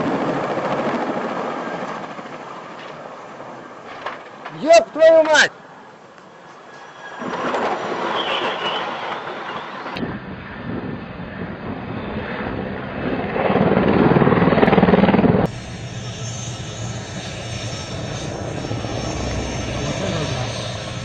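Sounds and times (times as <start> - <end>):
helicopter rotor and engine: 0.0 - 3.9, 9.2 - 21.0.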